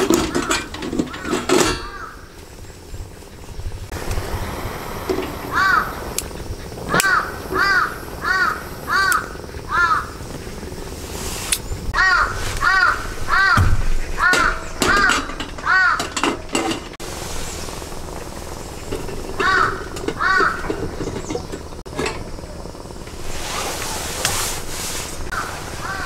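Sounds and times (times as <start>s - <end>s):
bird calling: 0.0s - 22.7s, 25.3s - 26.0s
sharp clicks and knocks: 13.6s - 17.0s.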